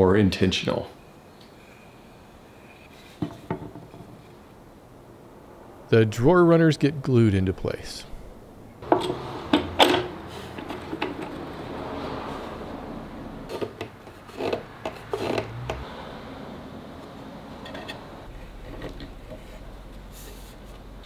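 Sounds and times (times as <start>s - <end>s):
wood knocking on wood: 3.2s - 4.2s.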